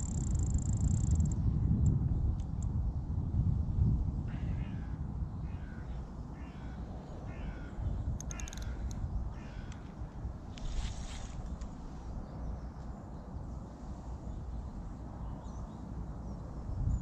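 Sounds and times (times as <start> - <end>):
steady low rumble: 0.0 - 17.0
crows cawing: 4.3 - 10.1.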